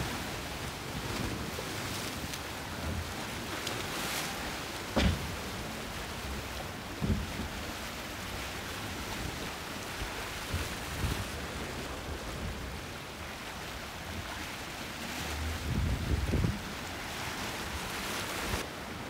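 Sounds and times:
rough water washing: 0:00.0 - 0:19.0
wind buffeting microphone: 0:15.2 - 0:17.0.

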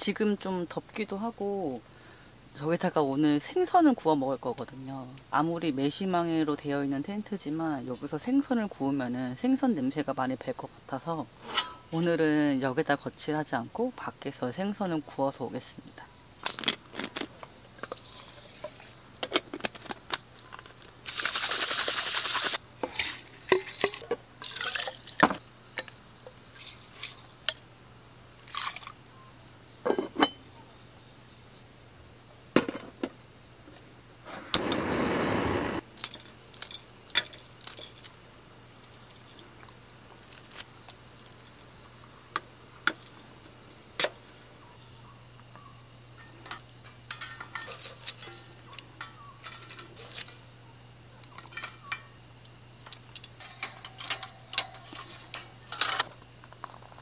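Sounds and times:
liquid pouring: 0:24.4 - 0:25.2, 0:28.5 - 0:28.9
dishes and glasses clinking: 0:29.8 - 0:30.4, 0:46.2 - 0:49.8, 0:53.4 - 0:56.0.

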